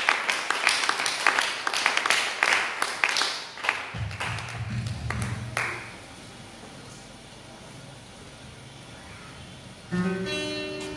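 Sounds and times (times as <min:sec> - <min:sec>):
people clapping: 0:00.0 - 0:06.0
low steady hum: 0:04.0 - 0:10.9.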